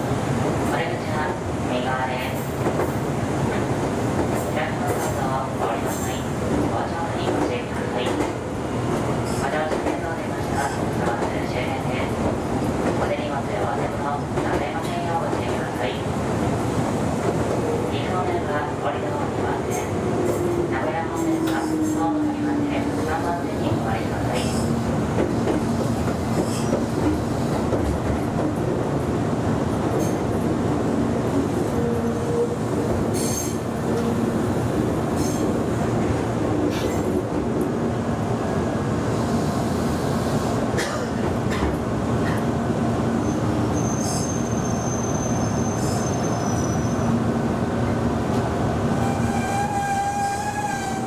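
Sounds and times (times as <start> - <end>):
train rumbling on rails: 0.0 - 51.0
high wheel squeal: 43.2 - 47.1.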